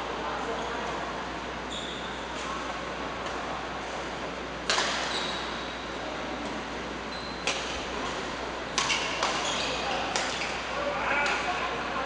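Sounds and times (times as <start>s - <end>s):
racket hitting shuttlecock: 4.6s - 5.1s, 7.4s - 10.6s.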